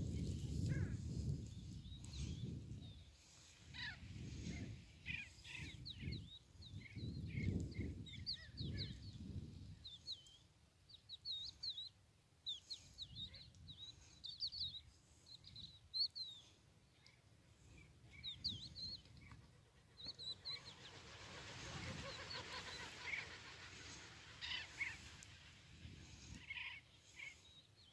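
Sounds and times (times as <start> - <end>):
wind rumble on microphone: 0.0 - 10.1, 23.8 - 26.7
birds chirping in flight: 0.1 - 10.4, 12.5 - 27.9.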